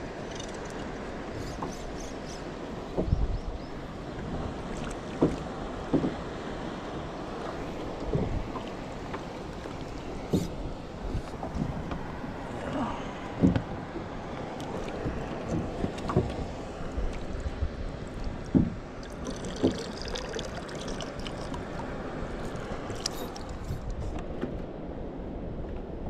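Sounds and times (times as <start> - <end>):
water lapping against boat hull: 0.0 - 24.3
sharp knocks on boat: 2.9 - 3.4, 5.1 - 6.2, 8.0 - 9.2, 13.3 - 13.7, 15.0 - 16.5, 18.5 - 18.9.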